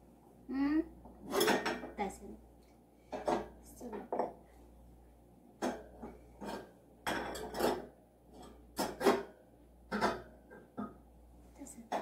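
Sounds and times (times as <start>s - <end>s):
tableware clinking: 1.3s - 2.0s, 5.6s - 9.3s, 9.9s - 10.3s.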